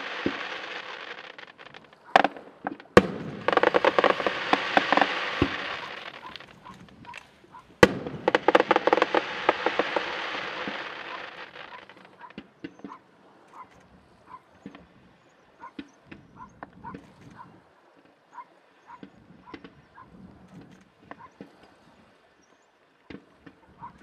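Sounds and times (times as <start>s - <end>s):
fireworks bangs: 0.0s - 13.0s
fireworks crackling: 0.0s - 13.0s.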